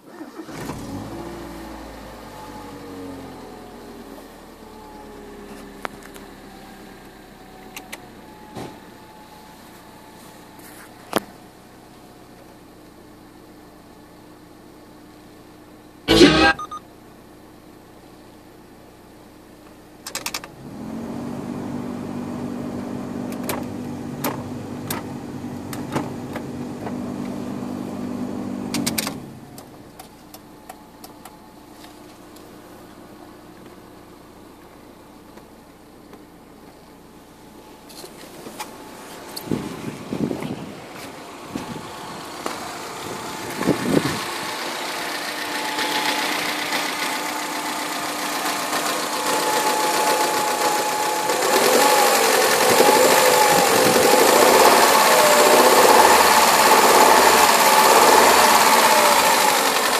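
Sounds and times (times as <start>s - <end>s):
car engine idling: 29.4s - 59.9s.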